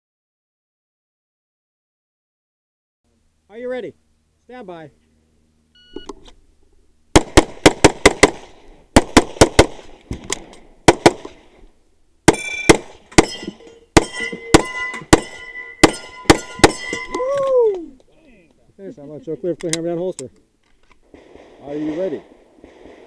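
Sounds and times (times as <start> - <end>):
electronic shot-timer beep: 5.8 - 6.1
pistol shots in fast strings: 7.2 - 9.9, 10.9 - 11.4
steel targets ringing: 12.3 - 17.2.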